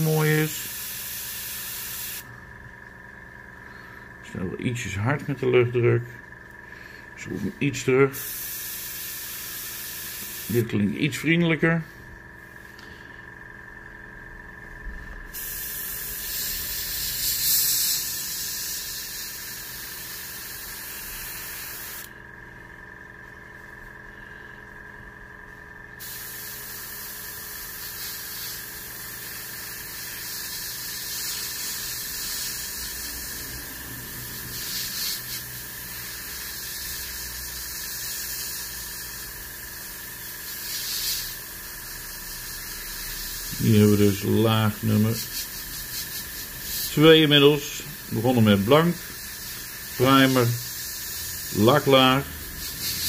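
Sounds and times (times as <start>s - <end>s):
airbrush spraying hiss: 0.0s - 2.2s, 7.3s - 10.7s, 15.3s - 22.1s, 26.0s - 53.0s.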